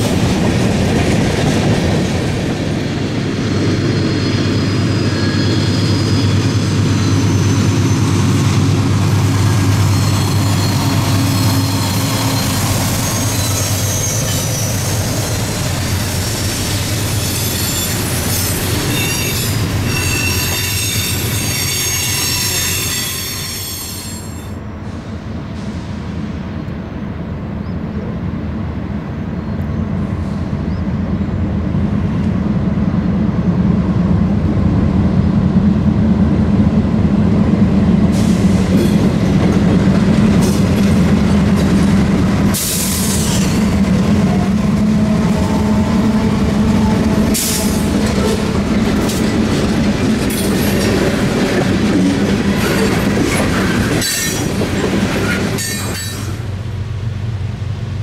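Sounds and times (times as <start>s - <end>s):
diesel locomotive engines droning: 0.0s - 58.0s
train wheels squealing on rail: 3.2s - 26.1s, 38.0s - 39.3s, 40.3s - 56.6s.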